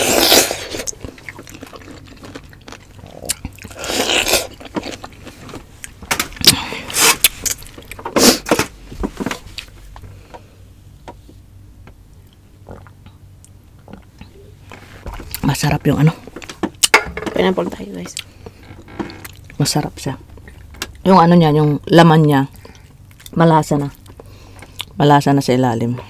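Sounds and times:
wet chewing: 0:00.0 - 0:08.0, 0:22.5 - 0:25.0.

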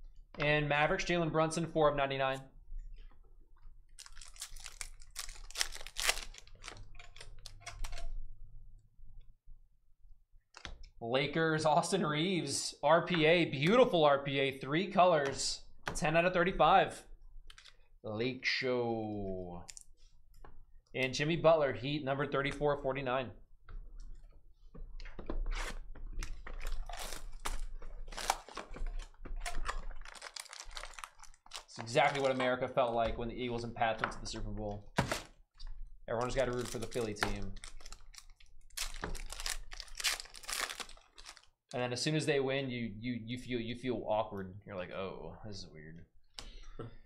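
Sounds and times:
foil wrapper crinkling: 0:04.0 - 0:07.5, 0:26.2 - 0:32.4, 0:36.2 - 0:41.6.

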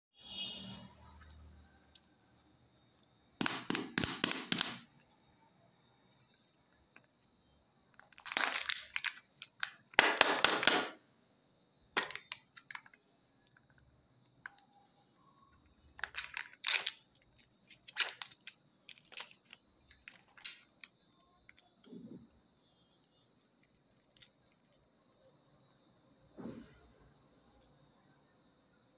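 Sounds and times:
foil wrapper crackling and tearing: 0:08.0 - 0:10.7, 0:16.0 - 0:21.6.

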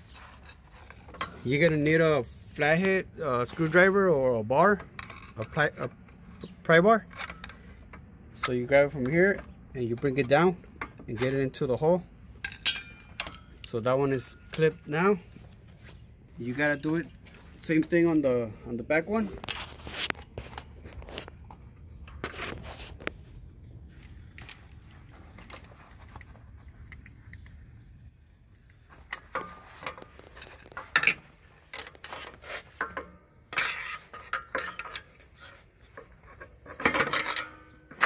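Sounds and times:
metal tools clinking and scraping: 0:00.0 - 0:02.1, 0:04.6 - 0:11.8, 0:12.4 - 0:23.1, 0:28.6 - 0:38.0.

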